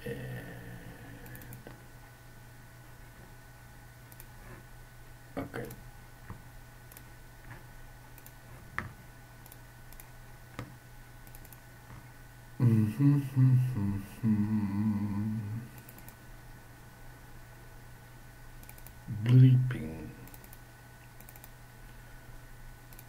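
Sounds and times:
man humming a tune: 0.0 - 1.6, 12.6 - 15.8
low background hum: 0.0 - 23.0
mouse clicks: 4.1 - 4.3, 5.6 - 12.0, 18.6 - 19.0, 20.2 - 21.5.

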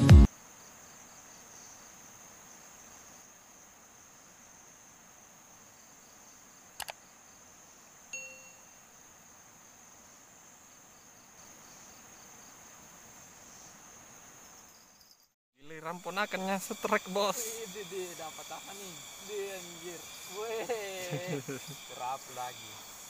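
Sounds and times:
insects chirring: 0.2 - 23.0
pulsing insect call: 0.2 - 23.0
quick clicks: 6.8 - 7.0
bell-like ding: 8.2 - 8.8.

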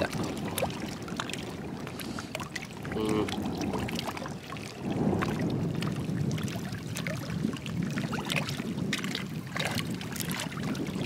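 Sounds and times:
water lapping and trickling: 0.0 - 11.0.

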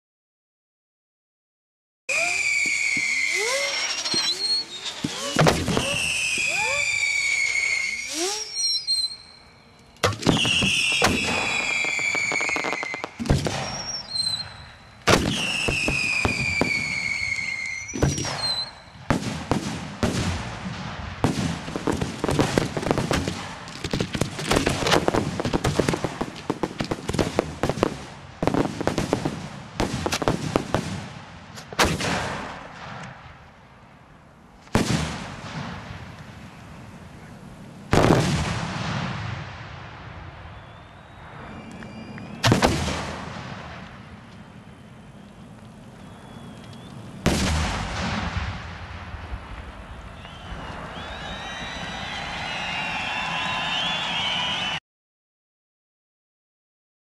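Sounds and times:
dense rapid firework crackling: 2.1 - 9.2, 10.1 - 33.4, 34.7 - 54.3
firework bangs: 2.1 - 9.3, 10.0 - 33.4, 34.6 - 36.9, 37.5 - 54.0
whistle falling in pitch: 2.1 - 18.9, 40.4 - 42.7, 46.0 - 47.1, 50.0 - 54.8.

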